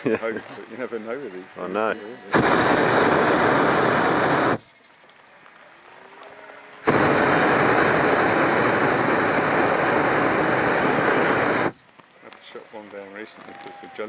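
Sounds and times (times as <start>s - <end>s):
propane burner roaring: 2.3s - 4.6s, 6.8s - 11.8s.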